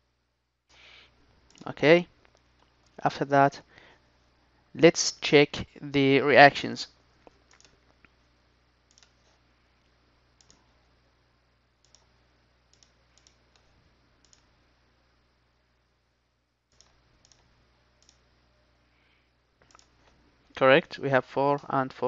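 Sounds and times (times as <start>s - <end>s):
faint low hum: 0.0s - 22.0s
computer mouse clicks: 7.5s - 7.8s, 8.9s - 9.3s, 10.4s - 10.6s, 11.8s - 12.1s, 12.7s - 14.5s, 16.7s - 18.2s, 19.6s - 20.2s.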